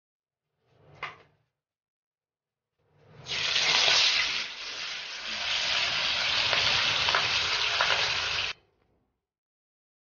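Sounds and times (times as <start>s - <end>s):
fish sizzling in hot oil: 3.3s - 8.5s.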